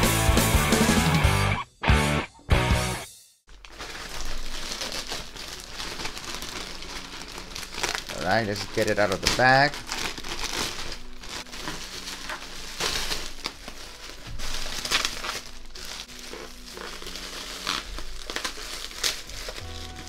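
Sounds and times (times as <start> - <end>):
bag crinkling and rustling: 3.5 - 20.0.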